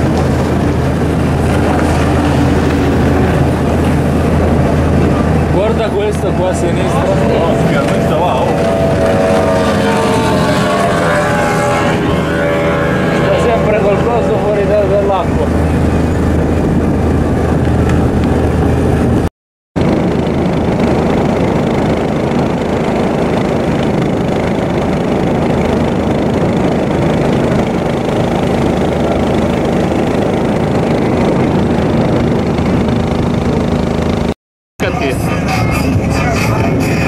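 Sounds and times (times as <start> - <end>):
water: 0.0 - 19.2
boat engine running: 0.0 - 37.0
wind: 0.0 - 37.0.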